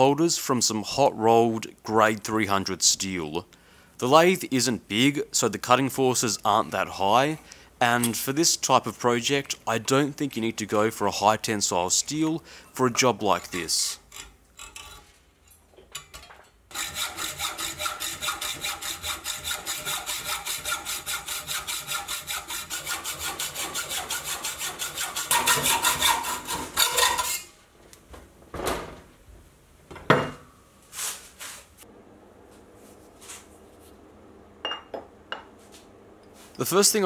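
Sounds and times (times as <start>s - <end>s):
hacksaw cutting steel bar: 16.7s - 27.5s.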